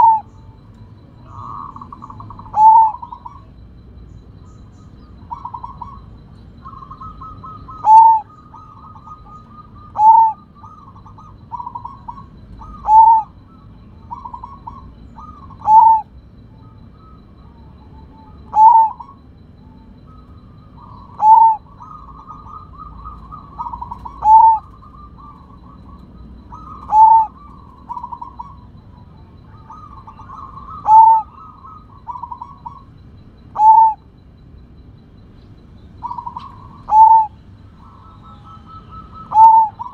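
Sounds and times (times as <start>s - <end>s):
dove cooing song: 0.0s - 39.9s.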